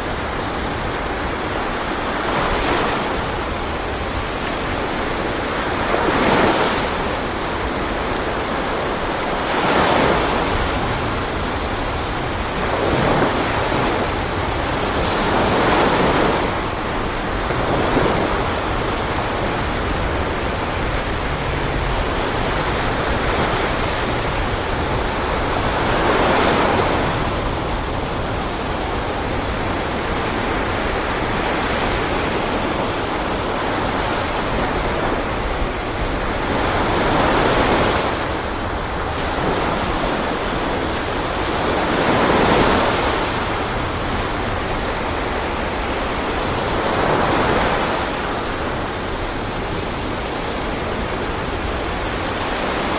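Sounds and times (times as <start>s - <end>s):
sea waves washing: 0.0s - 52.9s
wind: 0.0s - 52.9s.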